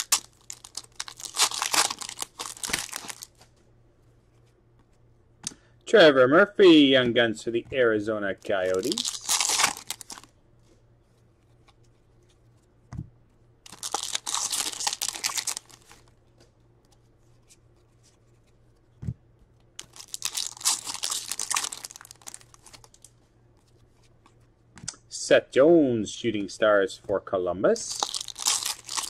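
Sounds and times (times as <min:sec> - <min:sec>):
wrappers torn and crinkled: 0:00.0 - 0:03.4, 0:08.6 - 0:10.3, 0:13.7 - 0:16.1, 0:19.8 - 0:23.1, 0:27.9 - 0:29.0.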